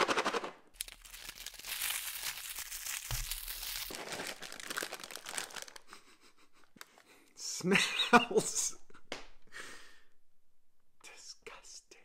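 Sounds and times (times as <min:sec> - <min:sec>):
cardboard tearing: 0:00.8 - 0:05.8
plastic bag crinkling: 0:00.8 - 0:05.9.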